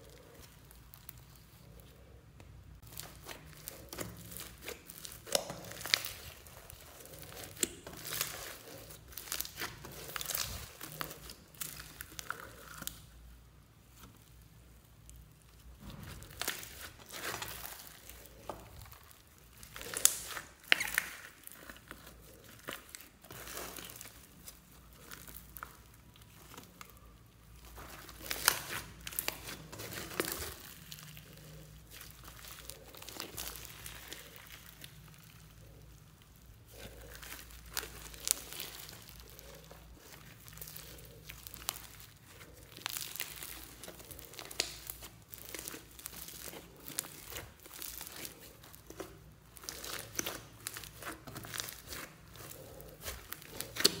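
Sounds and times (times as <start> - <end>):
sticky slime crackling and popping: 0.0 - 54.0
foam beads crunching: 15.8 - 54.0.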